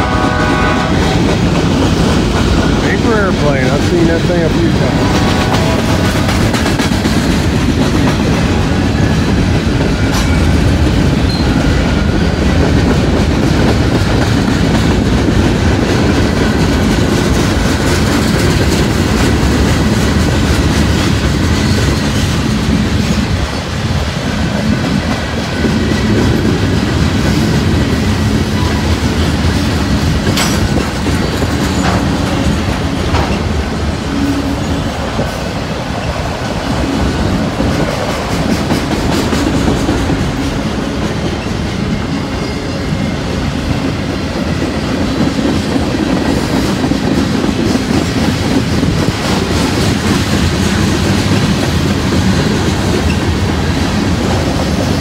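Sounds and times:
wheels clacking over rail joints: 0:00.0 - 0:42.2
train cars rumbling past: 0:00.0 - 0:55.0.

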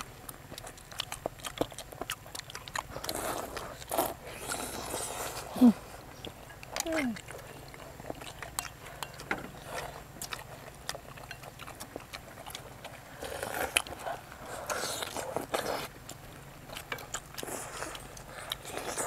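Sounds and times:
people chewing with mouth clicks: 0:00.0 - 0:19.0
slurping and finger-sucking: 0:02.1 - 0:09.0.

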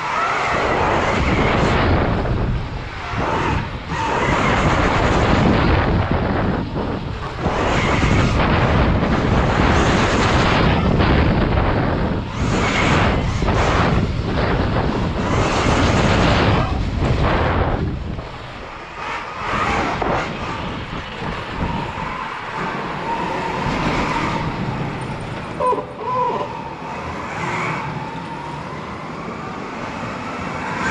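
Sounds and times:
wind noise on microphone: 0:00.0 - 0:30.9
rumble of bike over dirt: 0:00.6 - 0:25.7.

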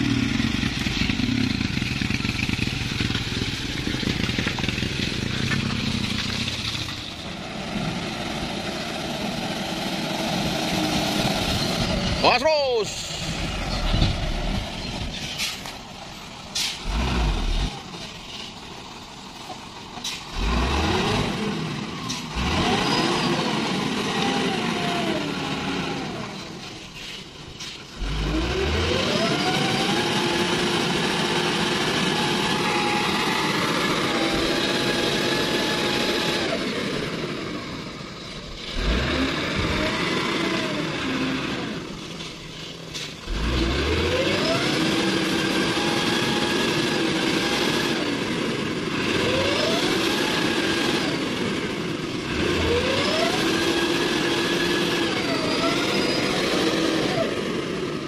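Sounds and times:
diesel truck engine revving hard: 0:07.4 - 0:12.4, 0:16.6 - 0:18.0, 0:20.0 - 0:26.5, 0:28.0 - 0:42.2, 0:43.2 - 0:58.0.

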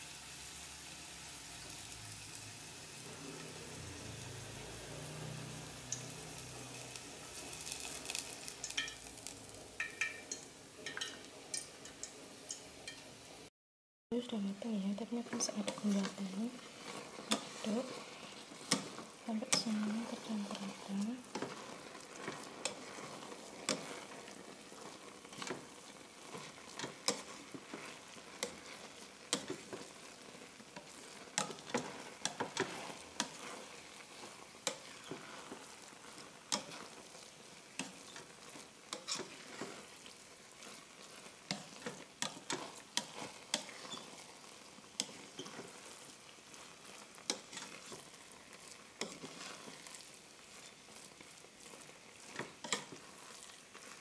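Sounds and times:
spatula scraping a pot: 0:15.2 - 0:54.0.

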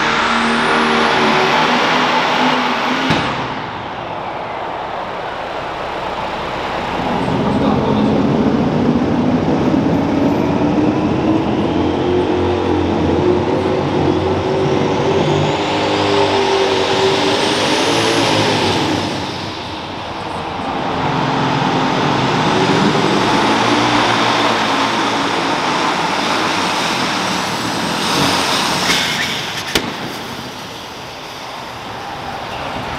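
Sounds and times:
tractor engine running hard: 0:00.0 - 0:32.9
sharp crack: 0:28.8 - 0:30.7.

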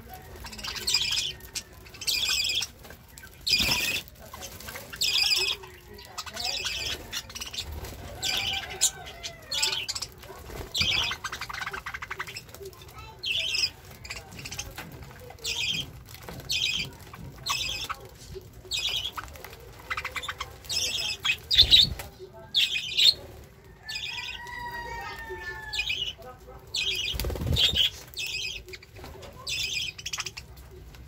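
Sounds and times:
budgerigars squawking: 0:00.4 - 0:12.5.

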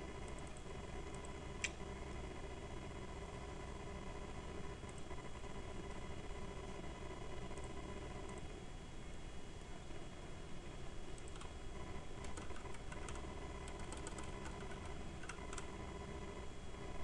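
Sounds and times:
faint background hum: 0:00.0 - 0:17.0.

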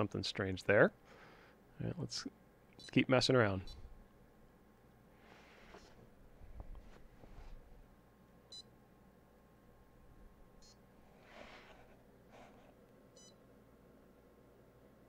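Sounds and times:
soft rustle: 0:05.2 - 0:07.9, 0:11.0 - 0:12.8.

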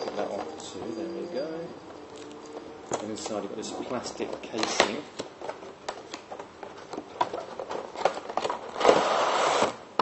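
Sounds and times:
plastic and cardboard clicks and crinkles: 0:00.0 - 0:00.8, 0:02.1 - 0:10.0
plastic casing scraping out of box: 0:07.2 - 0:09.8.

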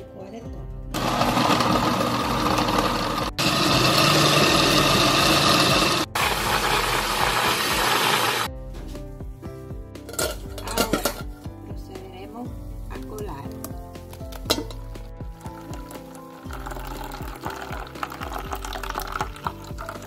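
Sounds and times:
blender running: 0:00.9 - 0:08.5.

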